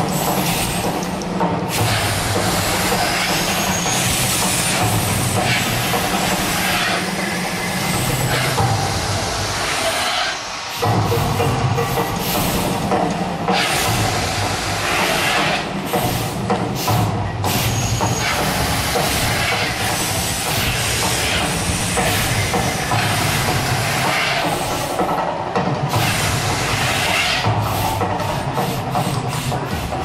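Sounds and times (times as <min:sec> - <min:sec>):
fire jets hissing: 0:01.7 - 0:24.9.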